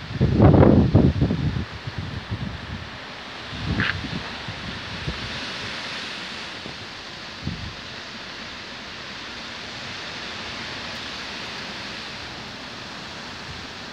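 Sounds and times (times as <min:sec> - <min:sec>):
wind buffeting microphone: 0:00.0 - 0:07.9
wind rustling tree leaves: 0:00.0 - 0:13.9.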